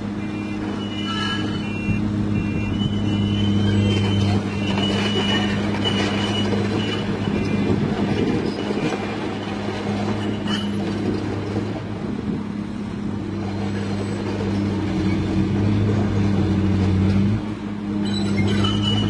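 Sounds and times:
diesel engine humming: 0.0s - 19.0s
steel tracks clanking: 2.5s - 11.9s, 13.2s - 19.0s.

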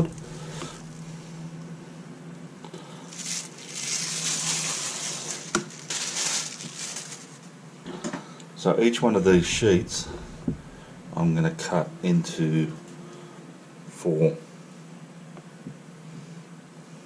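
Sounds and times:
plastic sheet rustling: 3.1s - 7.5s.

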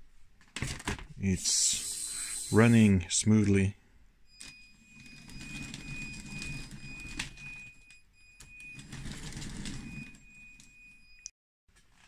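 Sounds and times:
thin high whine: 1.2s - 3.6s.

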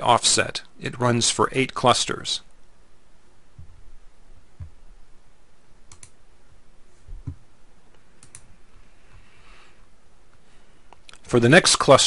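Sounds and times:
low thumps: 7.1s - 7.5s.

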